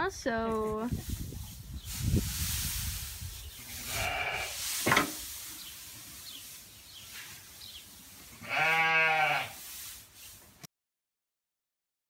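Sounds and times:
hay rustling tossed with pitchfork: 0.9s - 10.6s
farm animal bleating: 3.6s - 4.6s, 8.2s - 9.6s.

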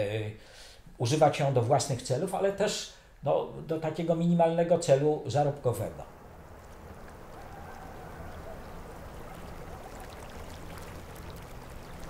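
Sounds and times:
river water flowing: 6.0s - 12.0s.

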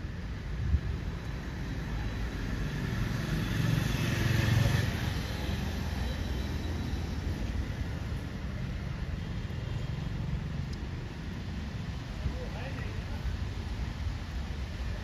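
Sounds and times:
background traffic noise: 0.0s - 15.0s
vehicle passing: 2.4s - 7.3s.

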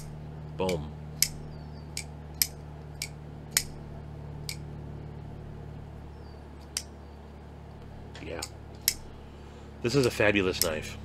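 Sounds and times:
quieter knife clicks: 0.0s - 3.8s, 4.4s - 4.7s, 6.6s - 6.9s, 8.4s - 9.1s, 10.0s - 10.8s.

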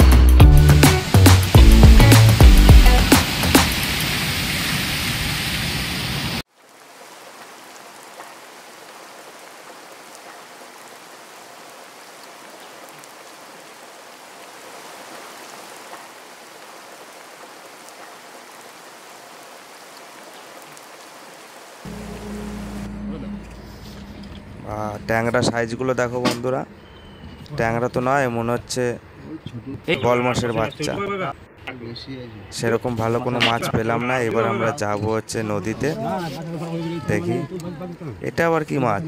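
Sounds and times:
water rushing over rocks: 0.9s - 22.9s
loud noise cutting off: 21.9s - 25.4s.

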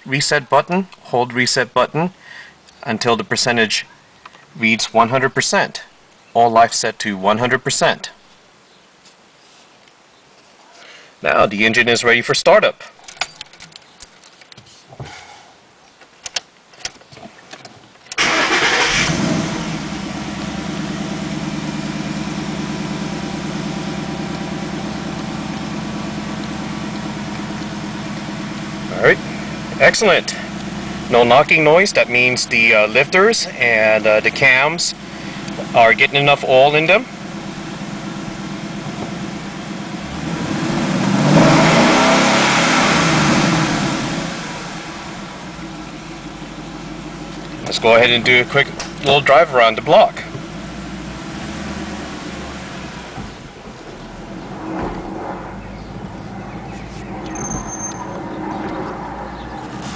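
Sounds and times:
car engine starting and idling: 18.1s - 59.9s.

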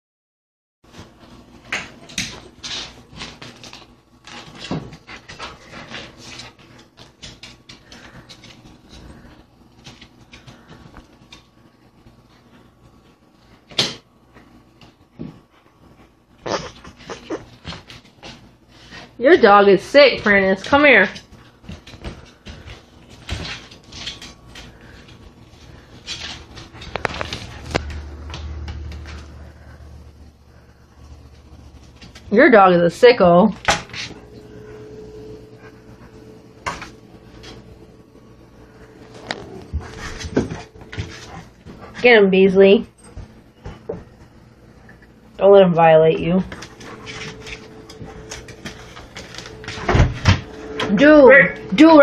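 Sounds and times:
animals scuffling: 0.9s - 13.6s, 14.3s - 45.2s, 46.2s - 52.0s
dog claws clicking on tile: 1.6s - 11.5s
dog panting: 39.4s - 42.2s, 46.5s - 49.2s.

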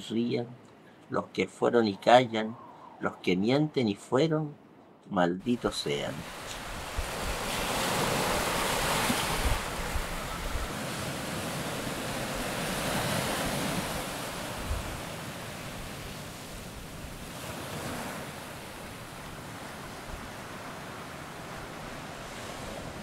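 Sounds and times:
wind on microphone: 1.8s - 3.7s, 6.2s - 18.2s
surf on rocky shore: 5.5s - 23.0s.

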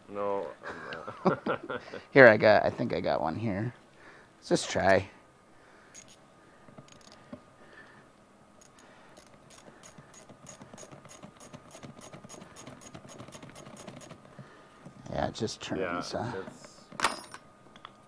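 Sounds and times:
socket ratchet clicking: 6.0s - 6.2s, 6.9s - 7.2s, 8.6s - 14.2s.

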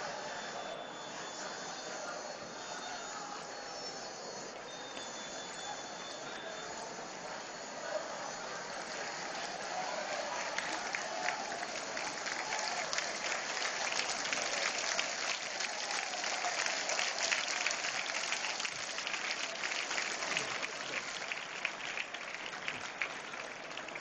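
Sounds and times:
crowd applauding: 0.0s - 24.0s.

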